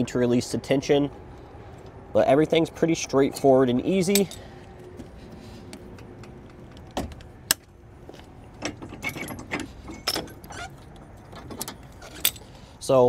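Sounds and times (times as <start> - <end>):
tow bar metal clanking: 8.5 - 12.6.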